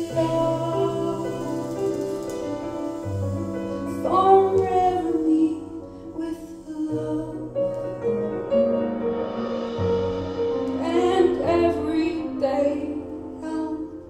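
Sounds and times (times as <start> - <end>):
deep bass notes: 7.2 - 13.0.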